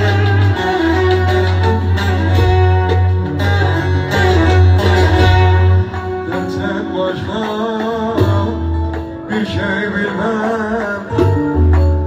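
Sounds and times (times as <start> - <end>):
heavy bass line: 0.0 - 9.2
man singing with vibrato: 3.8 - 12.0.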